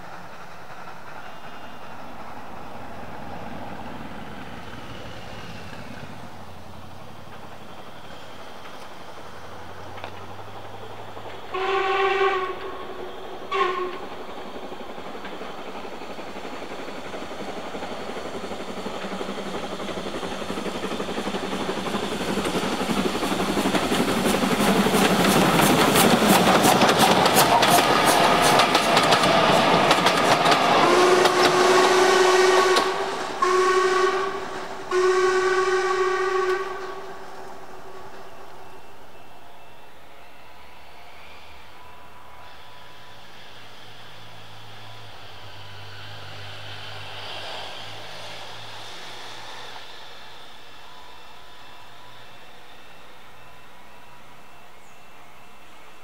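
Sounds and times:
train passing with even beat: 0.0s - 56.0s
steam locomotive whistle blasts: 11.4s - 14.2s, 29.4s - 43.6s.

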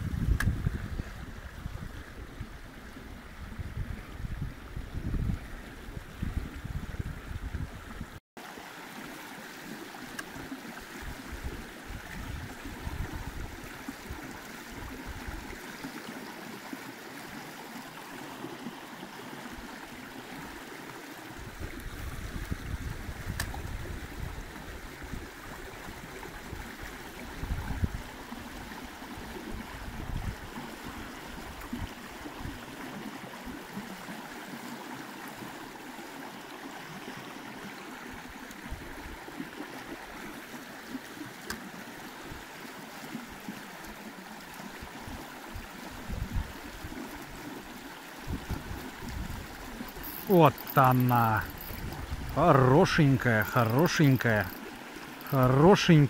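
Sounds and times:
stream water rushing: 0.0s - 56.0s.

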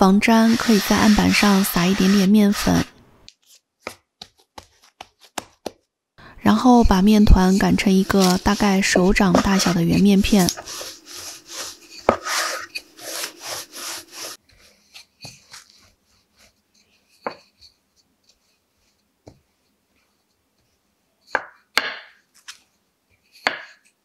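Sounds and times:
rolling pin rubbing on dough: 0.2s - 2.9s, 6.6s - 19.1s.

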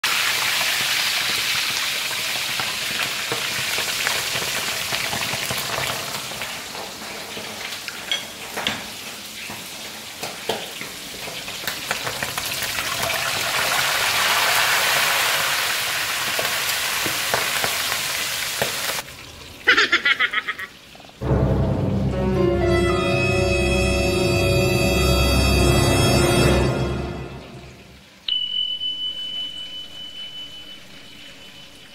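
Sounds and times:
meat sizzling in hot oil: 0.0s - 21.2s.

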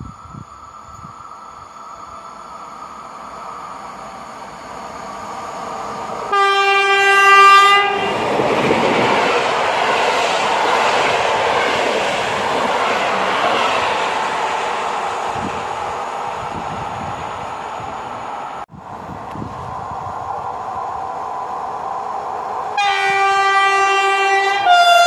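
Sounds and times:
train wheels rushing on rails: 0.0s - 25.0s
train horn blast: 6.3s - 8.1s, 22.8s - 25.0s.

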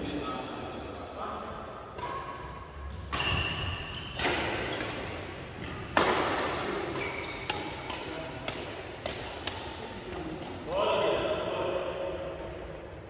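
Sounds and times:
racket hitting shuttlecock: 1.9s - 10.6s.

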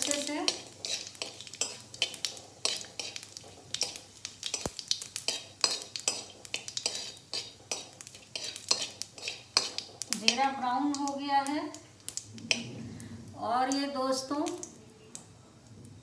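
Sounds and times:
steel spoon scraping a pan: 0.0s - 10.6s, 12.4s - 12.9s
seeds frying in oil: 0.0s - 16.0s.

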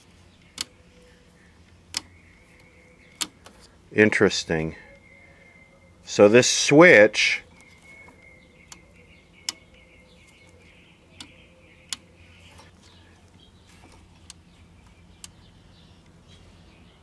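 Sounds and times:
birds chirping: 0.0s - 17.0s
radio switch clicking: 0.4s - 0.7s, 1.9s - 3.6s, 7.6s - 9.8s, 11.2s - 12.1s.

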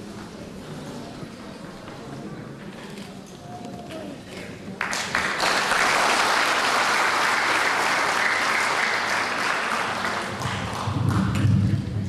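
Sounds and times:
audience applauding: 4.8s - 11.7s.

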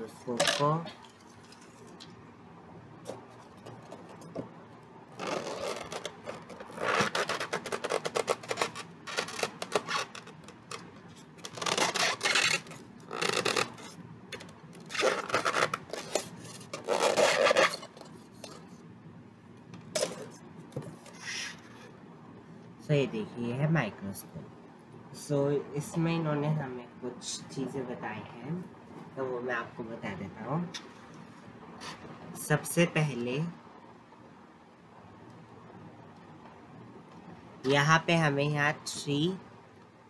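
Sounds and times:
foam scraping against plastic: 5.1s - 18.8s.

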